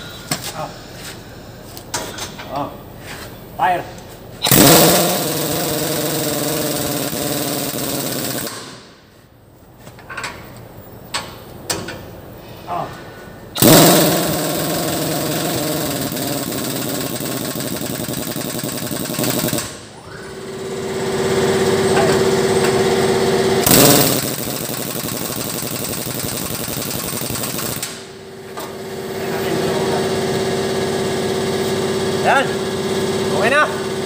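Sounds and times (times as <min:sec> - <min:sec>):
impact wrench hammering: 0:04.4 - 0:09.0, 0:13.6 - 0:19.9, 0:23.6 - 0:28.8.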